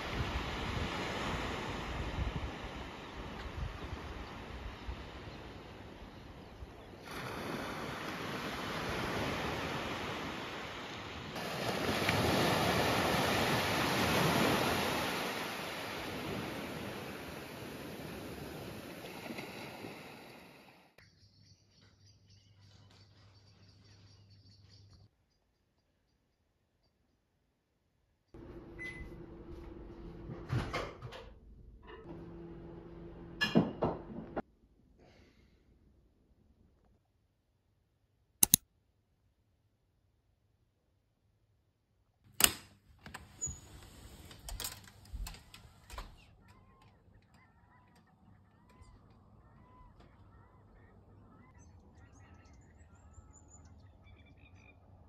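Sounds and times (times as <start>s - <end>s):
small waves washing onto beach: 0.0s - 20.8s.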